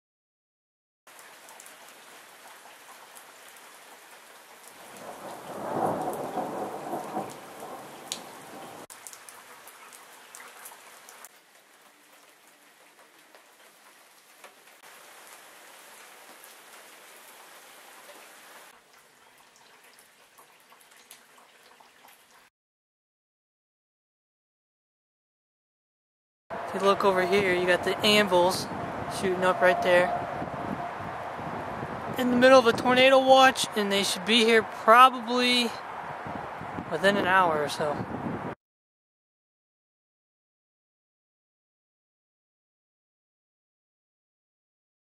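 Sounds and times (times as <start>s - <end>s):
steady rain: 1.1s - 22.5s, 26.5s - 38.6s
thunder rumble: 5.0s - 8.9s, 26.5s - 33.0s.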